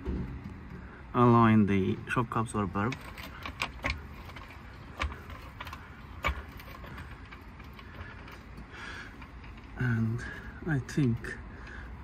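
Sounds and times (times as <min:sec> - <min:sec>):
metallic clicks and clunks: 0:02.7 - 0:09.8.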